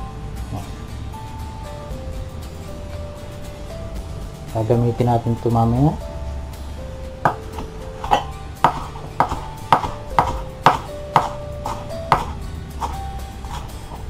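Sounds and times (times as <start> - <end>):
knife chopping on wooden board: 7.3 - 13.7.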